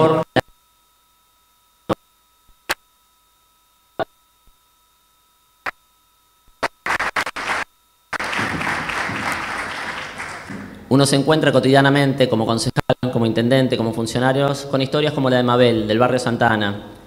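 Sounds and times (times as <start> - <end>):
sharp claps: 6.6 - 10.9
audience applause: 6.9 - 10.9.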